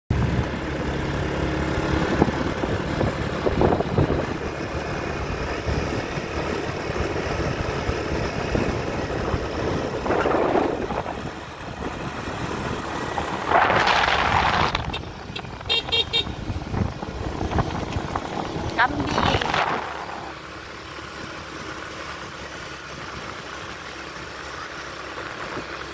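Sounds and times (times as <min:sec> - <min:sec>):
vehicle engine running: 0:00.1 - 0:25.9
rushing noise: 0:07.6 - 0:20.4.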